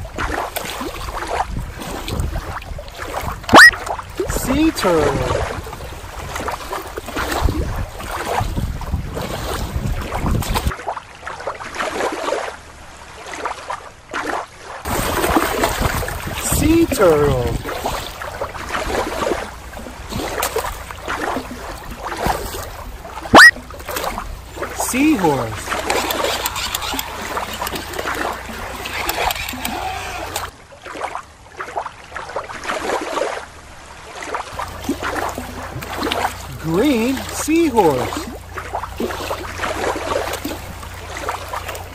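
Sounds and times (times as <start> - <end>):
wind rumbling on microphone: 0.0 - 10.7, 14.9 - 24.7
water lapping: 0.0 - 41.9.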